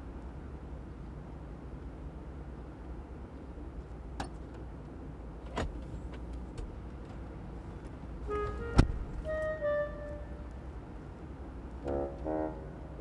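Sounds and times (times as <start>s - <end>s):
musical notes: 8.3s - 10.4s
car door slamming: 8.5s - 9.2s.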